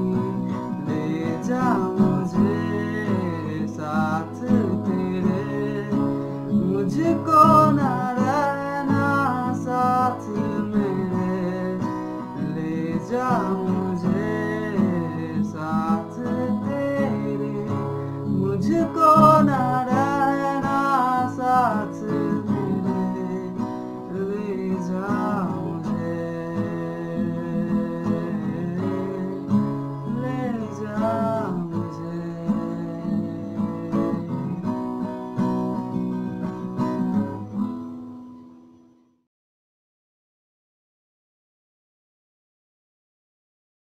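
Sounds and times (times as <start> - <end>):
man singing: 0.0 - 35.0
strummed acoustic guitar: 0.0 - 39.0.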